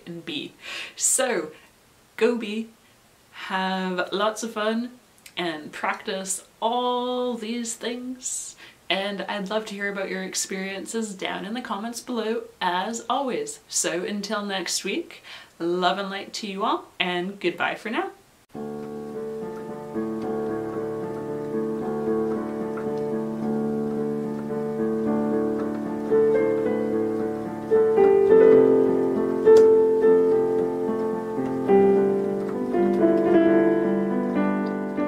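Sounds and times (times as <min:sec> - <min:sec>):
slow piano piece: 0:18.5 - 0:35.0.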